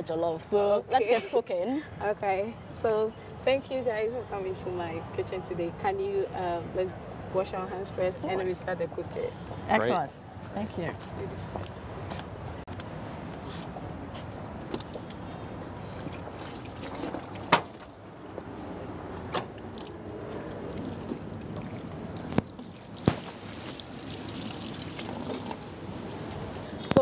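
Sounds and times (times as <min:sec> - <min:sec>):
water pouring into metal basin: 0:19.7 - 0:25.8.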